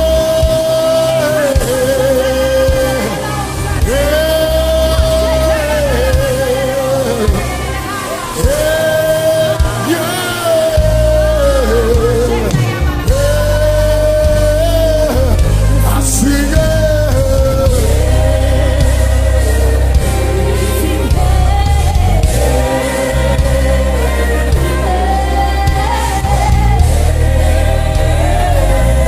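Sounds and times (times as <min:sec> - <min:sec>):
band with steady bass: 0:00.0 - 0:29.0.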